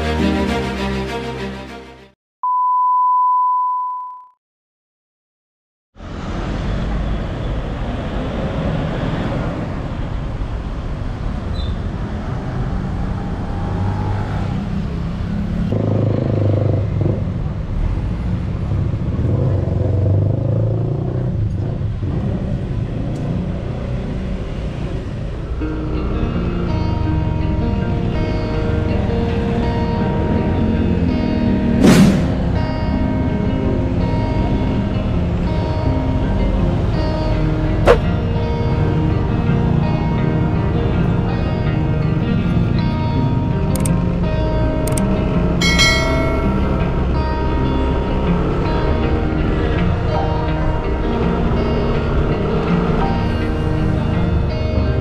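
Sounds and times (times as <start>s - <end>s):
theme music: 0.0s - 2.2s, 25.6s - 55.0s
steady beep tone: 2.4s - 4.4s
car driving past: 6.0s - 43.6s
street traffic: 6.0s - 55.0s.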